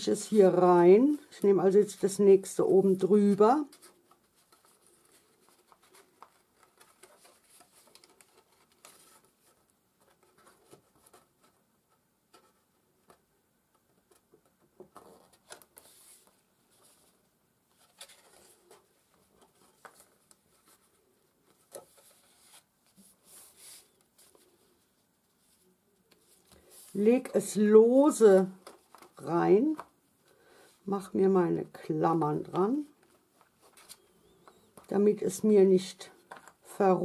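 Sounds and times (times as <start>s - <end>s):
cardstock rustling and scraping: 2.9s - 11.7s, 14.0s - 27.6s.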